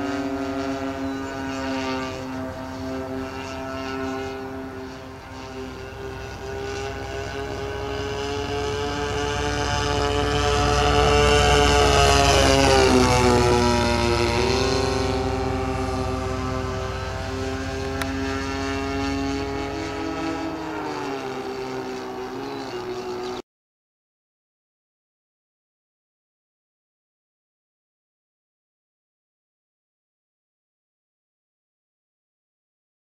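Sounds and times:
model plane engines droning: 0.0 - 23.4.

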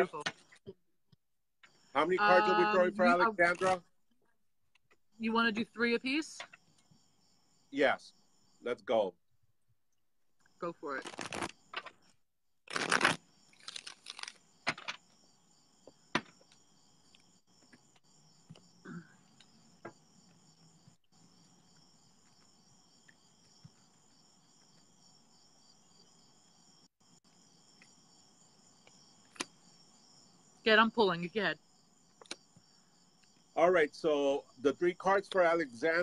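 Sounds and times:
crickets chirring: 1.6 - 36.0
cards being shuffled: 11.0 - 12.0, 12.7 - 15.0.

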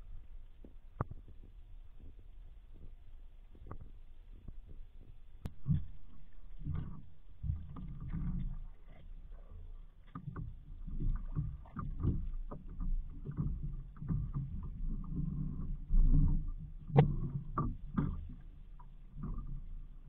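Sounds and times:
water sloshing and splashing: 5.5 - 20.0.

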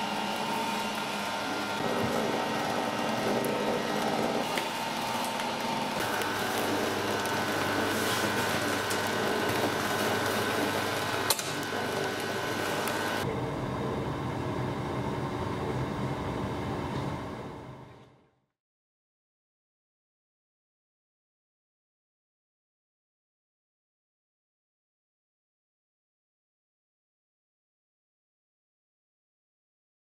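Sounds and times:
band sealer humming: 0.0 - 13.6.

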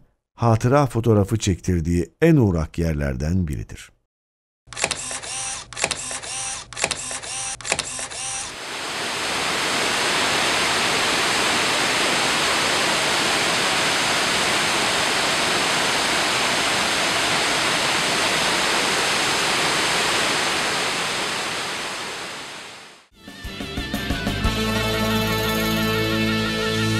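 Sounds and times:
waterfall rushing: 8.6 - 23.0.

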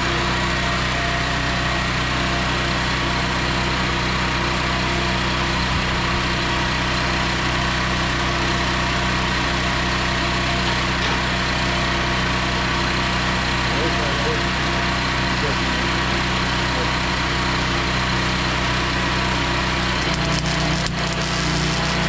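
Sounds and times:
generator engine running steadily: 0.0 - 22.0.

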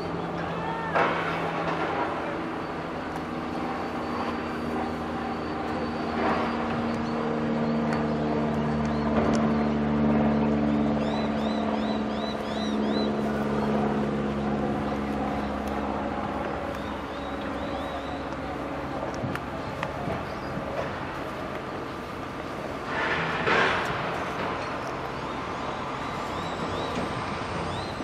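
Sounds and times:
locomotive engine droning: 0.0 - 28.0.

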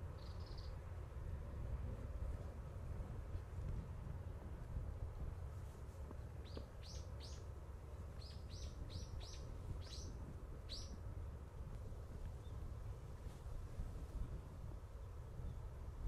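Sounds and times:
small bird chirping: 0.2 - 0.8, 6.4 - 7.5, 8.2 - 11.0.

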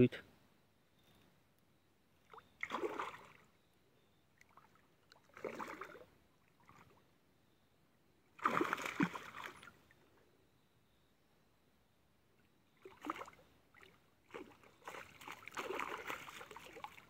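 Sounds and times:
fish splashing in water: 2.3 - 3.5, 4.4 - 7.0, 8.4 - 9.8, 12.8 - 17.0.

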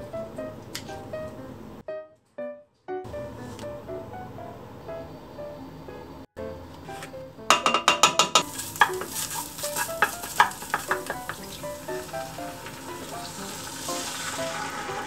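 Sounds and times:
soft background music: 0.0 - 7.9, 8.5 - 15.0
wooden spatula scraping pan: 8.4 - 11.4
paste sizzling in oil: 8.4 - 15.0.

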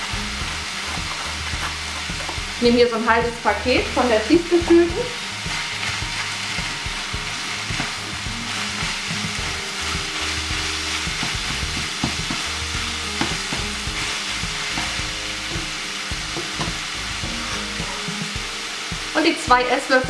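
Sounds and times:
meat sizzling in a frying pan: 0.0 - 20.0
spatula scraping a pan: 0.3 - 2.6, 3.8 - 16.8.

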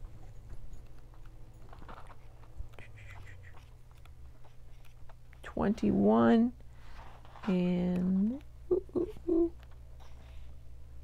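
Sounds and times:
low steady hum: 0.0 - 11.0
book pages rustling: 0.9 - 5.2.

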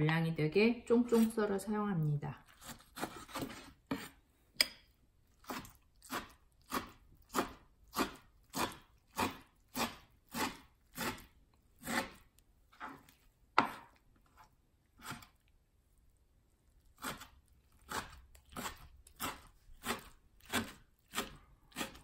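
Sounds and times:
knife chopping cabbage on board: 2.6 - 4.8, 5.4 - 12.2, 17.0 - 17.3, 17.9 - 22.0.

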